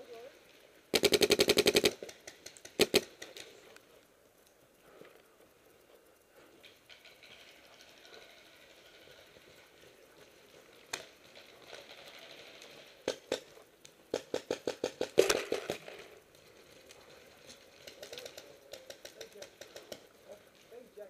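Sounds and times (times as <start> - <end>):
paintball markers firing: 0.9 - 3.6, 10.8 - 16.2, 17.0 - 20.2.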